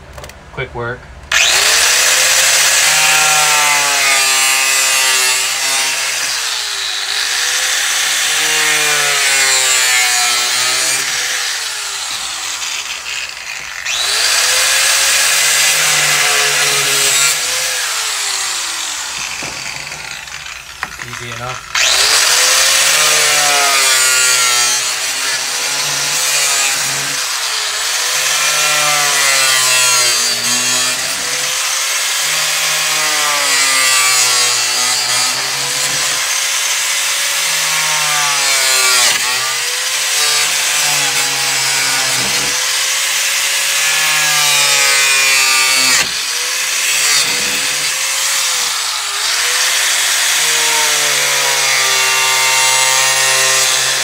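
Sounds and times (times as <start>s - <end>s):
angle grinder cutting plastic: 1.3s - 54.0s.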